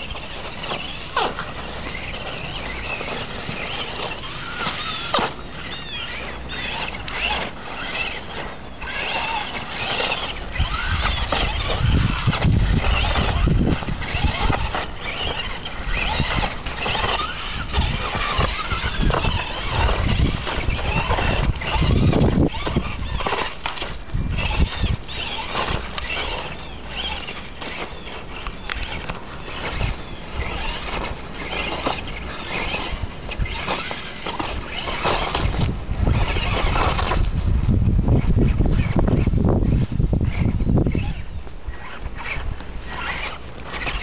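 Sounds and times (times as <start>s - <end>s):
toy truck motor whirring: 0.0s - 44.0s.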